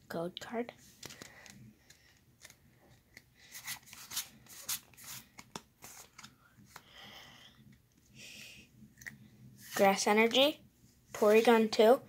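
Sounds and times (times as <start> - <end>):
trading cards rustling: 0.8 - 7.0.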